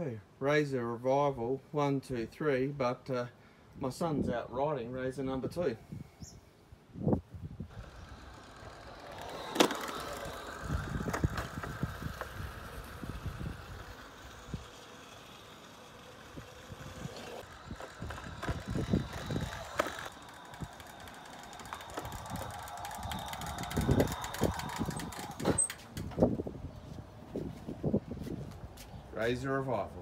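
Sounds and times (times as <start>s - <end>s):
scooter wheels rolling: 7.7s - 29.4s.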